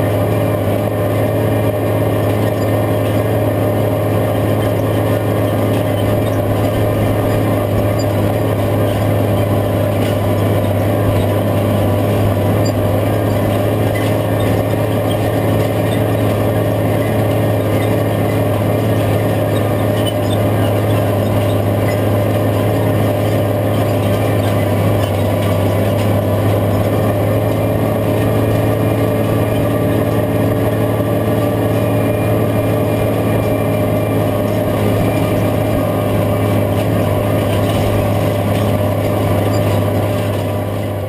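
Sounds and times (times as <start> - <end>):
tractor diesel engine under load: 0.0 - 41.0.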